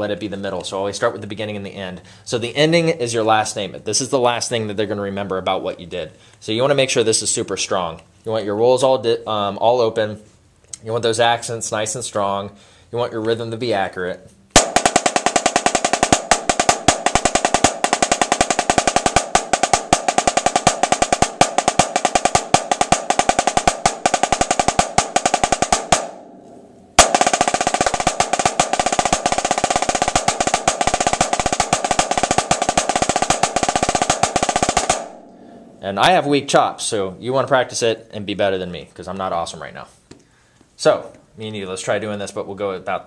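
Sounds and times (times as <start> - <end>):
snare drum rolls: 14.6 - 35.3.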